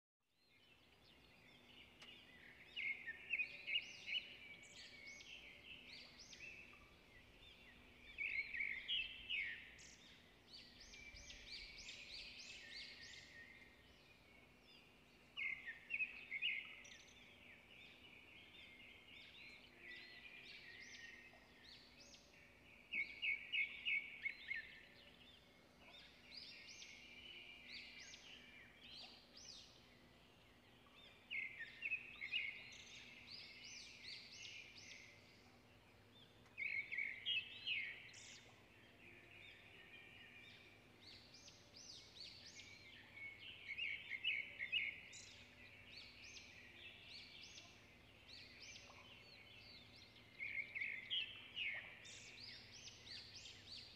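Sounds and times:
birds chirping: 0.6s - 53.9s.

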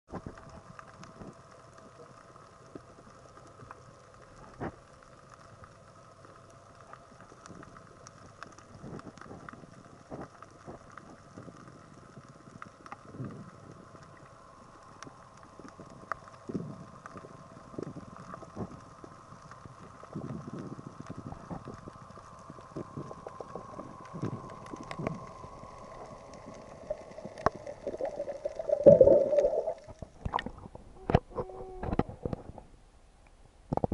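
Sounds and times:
muffled underwater hum: 0.1s - 33.9s
underwater clicks: 20.9s - 32.6s
gurgling splash: 26.8s - 30.8s.

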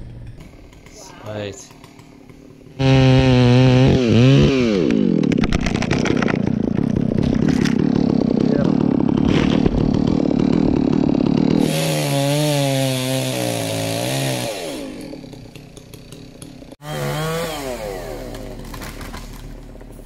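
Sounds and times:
chainsaw cutting wood: 0.0s - 20.0s.

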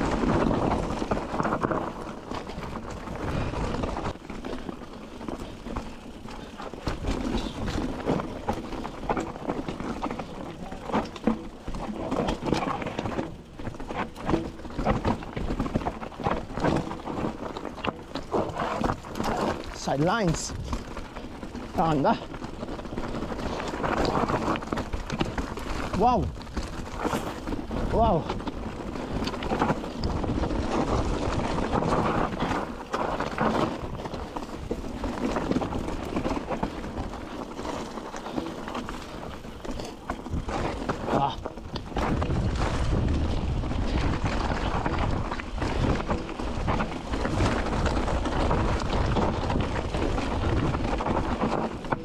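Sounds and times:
footsteps on a trail: 0.0s - 52.0s
wind buffeting microphone: 18.2s - 52.0s.

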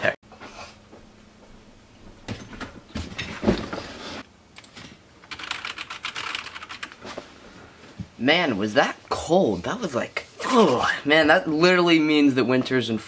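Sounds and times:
person sitting in office chair: 0.3s - 11.6s
rapid keyboard typing: 4.6s - 7.1s.

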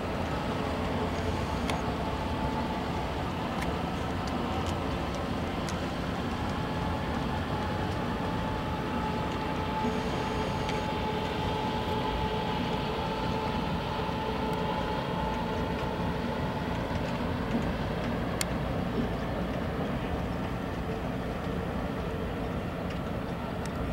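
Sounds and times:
thin motor whine: 0.0s - 18.0s
outboard motor drone: 0.0s - 23.9s.

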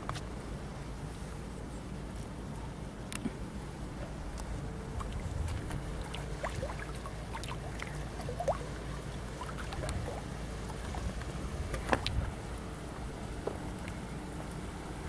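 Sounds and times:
water drips and splashes: 4.3s - 12.5s, 13.2s - 14.8s
river water rushing: 4.7s - 15.0s.

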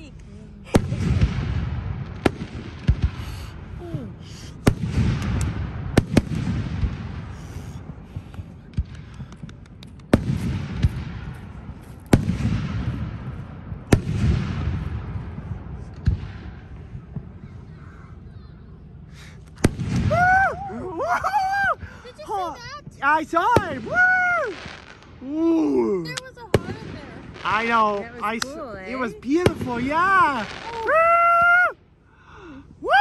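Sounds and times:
firework shells bursting: 4.6s - 13.2s.

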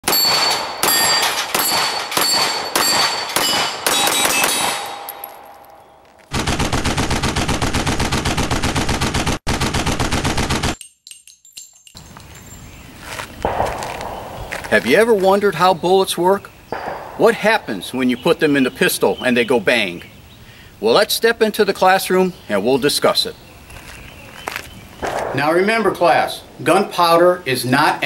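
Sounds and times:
steel targets ringing: 0.0s - 6.3s, 13.4s - 15.8s, 16.7s - 19.2s
handgun shots: 13.4s - 15.4s, 16.7s - 18.6s, 25.0s - 26.3s.

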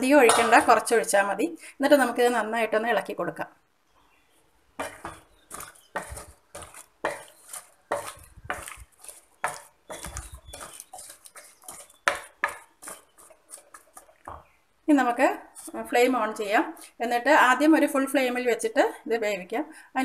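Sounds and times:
wooden spatula scraping a pan: 4.8s - 16.8s.

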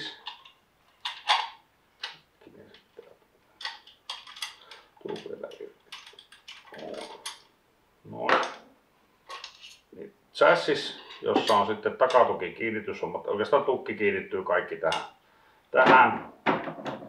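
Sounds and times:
rifle parts clicking and knocking: 3.6s - 7.4s.

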